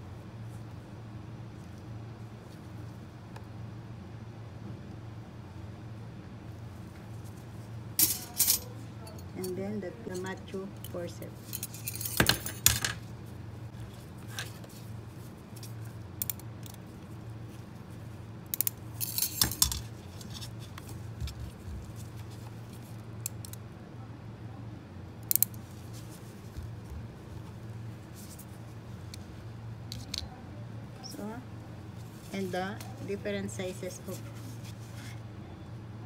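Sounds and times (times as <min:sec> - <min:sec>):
steady low hum: 0:00.0 - 0:36.0
metal instruments clinking: 0:08.0 - 0:13.0, 0:18.6 - 0:20.4.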